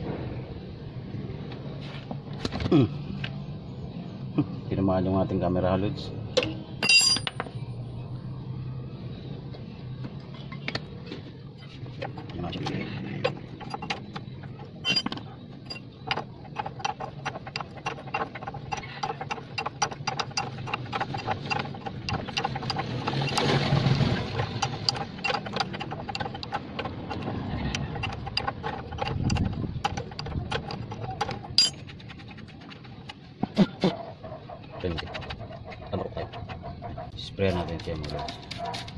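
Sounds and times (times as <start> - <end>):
ratchet wrench clicking: 24.4 - 31.8.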